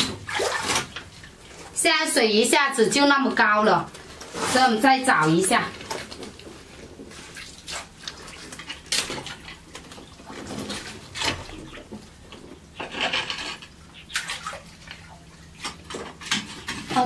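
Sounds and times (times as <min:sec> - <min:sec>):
shallow water splashing: 0:00.0 - 0:01.8, 0:04.3 - 0:12.2, 0:13.9 - 0:16.0.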